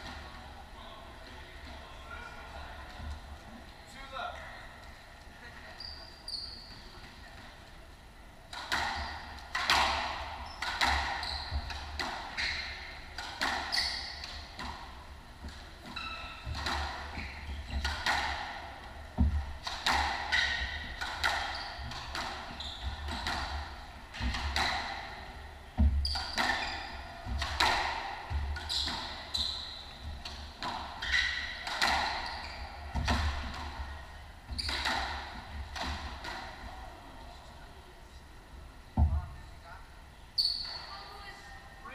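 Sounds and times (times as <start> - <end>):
squash ball hits echoing: 8.5 - 36.8.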